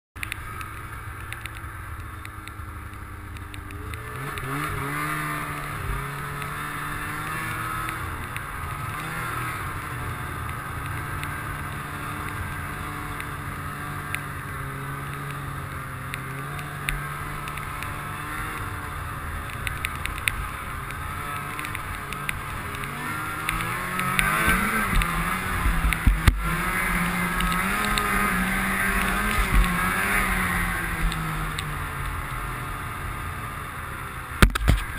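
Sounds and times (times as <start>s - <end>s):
snowmobile engine: 0.2s - 34.9s.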